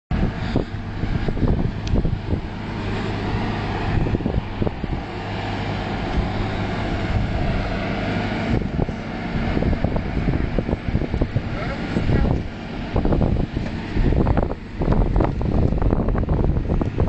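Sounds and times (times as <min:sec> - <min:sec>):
diesel truck engines rumbling: 0:00.1 - 0:17.0
wind on microphone: 0:00.1 - 0:17.0.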